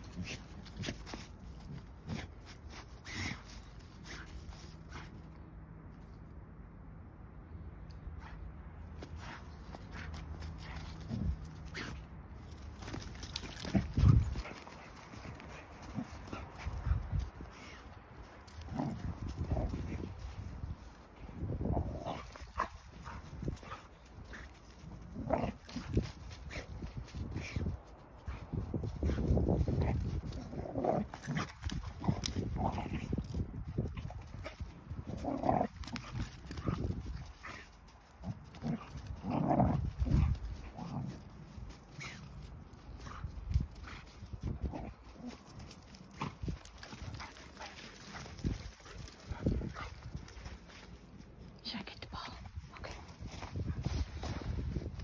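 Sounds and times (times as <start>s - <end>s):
dog grunting and snuffling: 9.2s - 20.8s, 21.4s - 27.7s, 28.3s - 55.0s
scuffing in snow: 52.4s - 55.0s.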